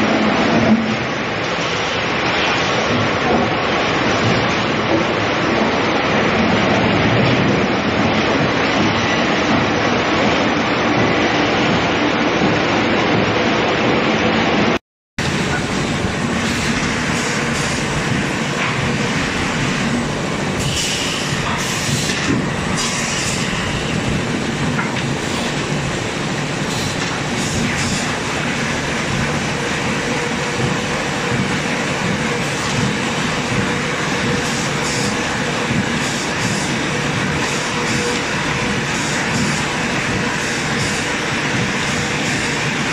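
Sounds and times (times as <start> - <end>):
conveyor mechanical rattle: 15.2 - 42.9.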